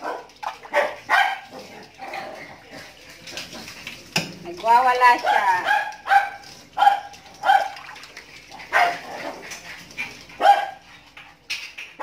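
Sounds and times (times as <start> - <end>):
dog barking: 0.0 - 1.7, 5.2 - 7.9, 8.6 - 9.4, 10.4 - 10.9.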